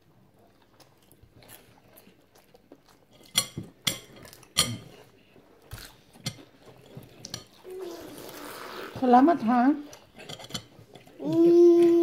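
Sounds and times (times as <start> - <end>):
tableware knocking and clinking: 10.2 - 11.1.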